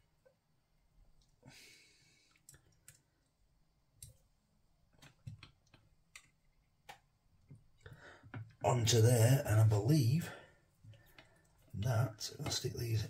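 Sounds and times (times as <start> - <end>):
faint metal clicks and taps: 4.9 - 8.6, 10.8 - 11.7.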